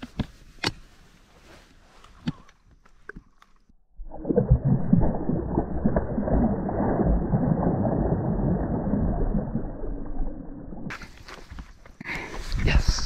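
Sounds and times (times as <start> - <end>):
fish splashing in shallow water: 4.0 - 11.0.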